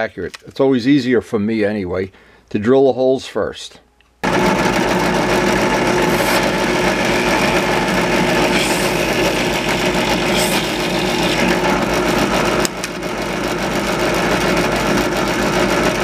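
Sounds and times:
drill bit scraping wood: 0:04.2 - 0:16.0
drill press motor running: 0:04.2 - 0:16.0.

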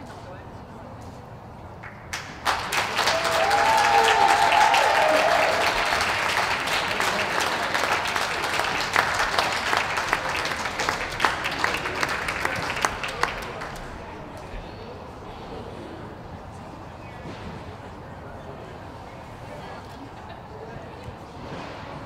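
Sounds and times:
crowd applauding: 0:01.8 - 0:14.1.

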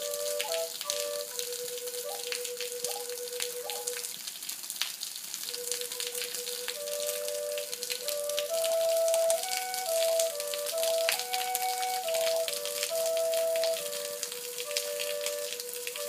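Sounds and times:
double flute drone and melody: 0:00.0 - 0:04.2, 0:05.5 - 0:16.0
crackly hiss: 0:00.0 - 0:16.0.

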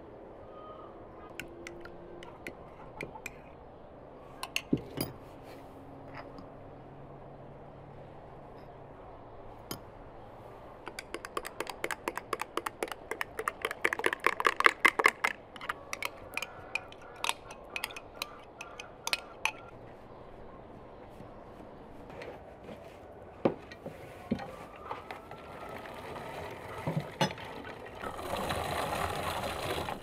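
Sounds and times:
metal spoon clinking on glass: 0:15.6 - 0:19.7.

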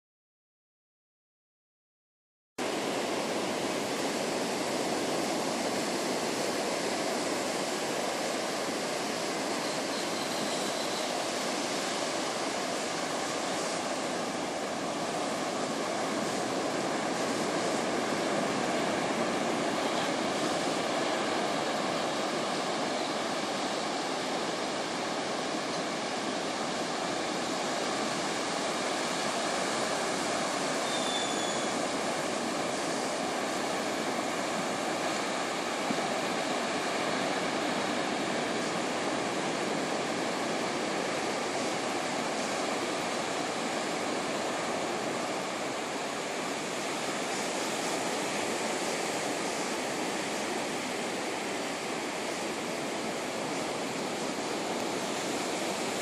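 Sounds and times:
small waves breaking on sand: 0:02.6 - 0:56.0
faint short high chirp: 0:30.8 - 0:31.7.

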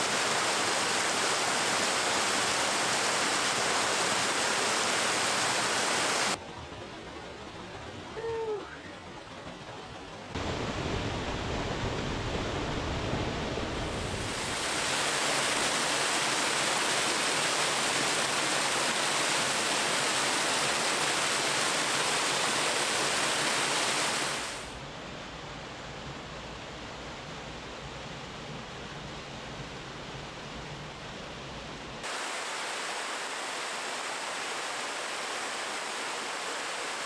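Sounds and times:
waterfall pouring over rocks: 0:00.0 - 0:06.4, 0:13.8 - 0:24.8, 0:32.0 - 0:37.0.

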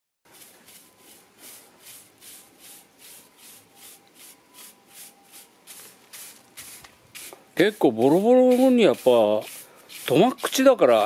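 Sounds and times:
broom sweeping concrete: 0:00.3 - 0:11.0.

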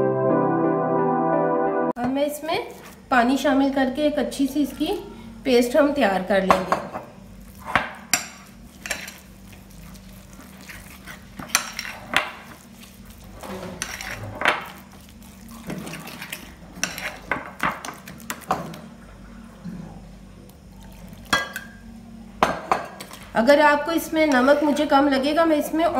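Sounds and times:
metal utensil stirring batter: 0:08.1 - 0:18.8.

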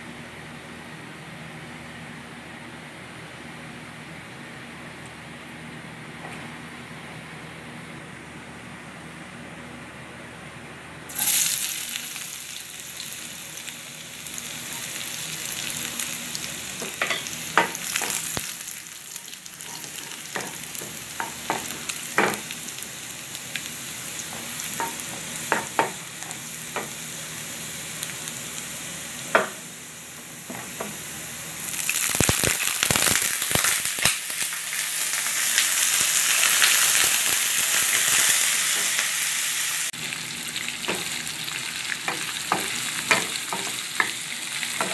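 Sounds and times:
garlic sizzling in oil: 0:11.1 - 0:44.9.

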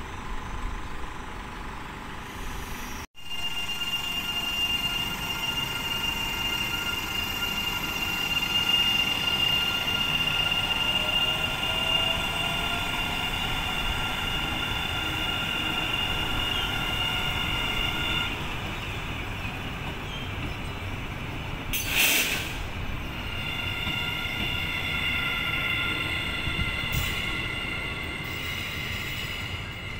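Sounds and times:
train rumbling past: 0:00.0 - 0:29.9
loud hiss: 0:21.8 - 0:22.8.

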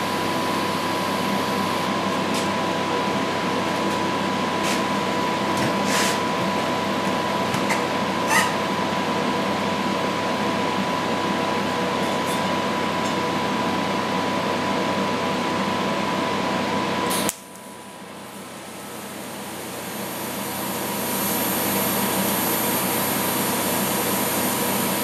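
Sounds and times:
thin high whine: 0:00.0 - 0:08.9, 0:18.2 - 0:25.0
fan hum and hiss: 0:00.0 - 0:25.0.

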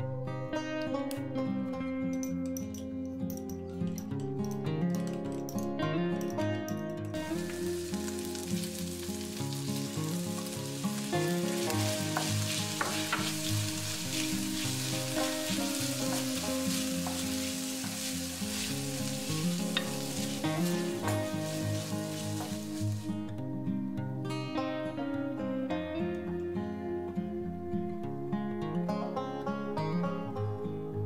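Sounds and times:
meat sizzling in a frying pan: 0:07.3 - 0:23.2
wooden spoon scraping a pan: 0:09.3 - 0:23.1.

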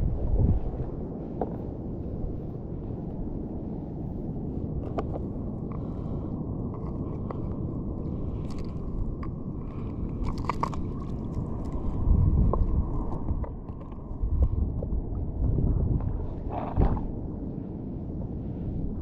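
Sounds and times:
wind and sea rushing: 0:00.0 - 0:19.0
crunching and scraping handling: 0:06.6 - 0:14.1.

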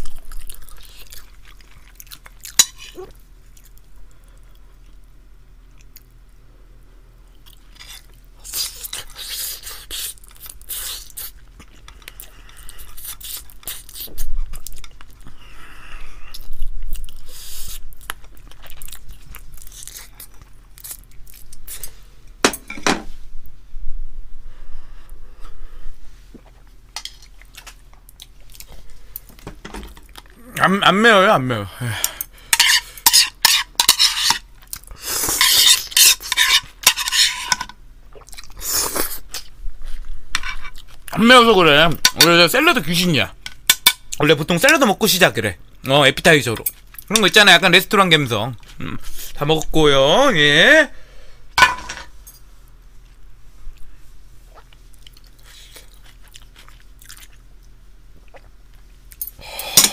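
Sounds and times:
crunchy chewing: 0:00.0 - 0:05.0, 0:16.3 - 0:22.0, 0:54.5 - 0:59.2.

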